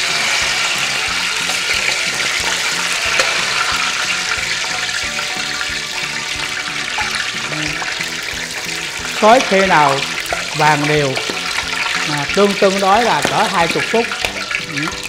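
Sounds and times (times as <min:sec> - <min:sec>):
oil pouring into wok: 0:00.0 - 0:10.6
background music: 0:00.0 - 0:15.0
hot oil sizzling: 0:00.0 - 0:15.0.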